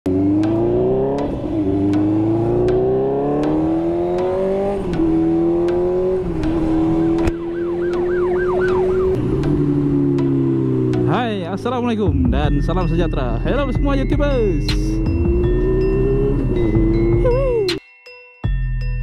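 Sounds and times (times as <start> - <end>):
motorcycle engine accelerating: 0.0 - 11.9, 14.7 - 17.7.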